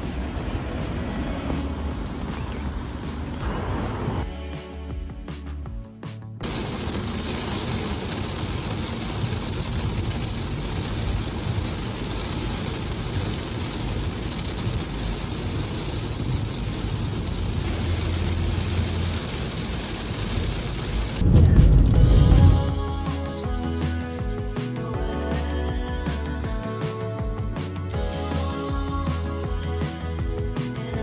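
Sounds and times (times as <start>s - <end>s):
heavy rain on car roof: 0.0s - 4.2s, 6.4s - 23.1s
low rumble: 0.0s - 4.3s, 20.8s - 23.6s.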